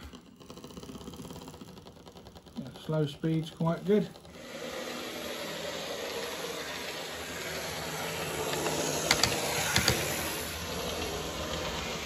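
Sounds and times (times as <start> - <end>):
model train motor whirring: 0.0 - 12.0.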